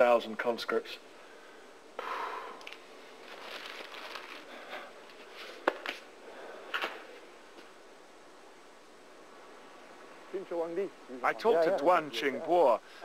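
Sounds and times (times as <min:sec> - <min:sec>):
sacks rustling and crinkling: 0:02.7 - 0:06.1.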